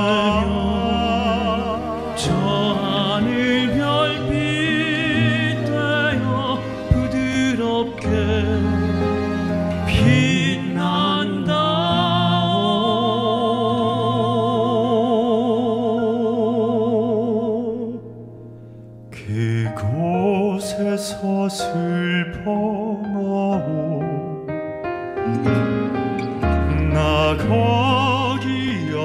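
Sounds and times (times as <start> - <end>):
single voice singing: 0.0 - 8.8, 26.5 - 29.0
instrumental accompaniment: 0.0 - 16.7, 19.9 - 29.0.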